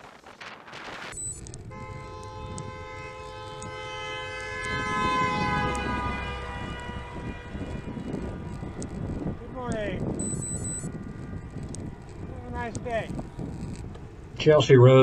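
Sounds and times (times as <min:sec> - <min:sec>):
car engine and tyres on road: 0:00.0 - 0:15.0
car horn held: 0:01.6 - 0:09.4.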